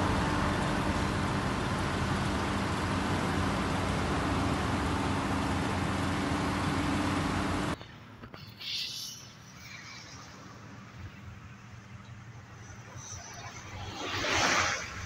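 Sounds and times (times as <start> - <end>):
excavator diesel engine running: 0.0 - 8.9
roadside traffic noise: 0.0 - 15.0.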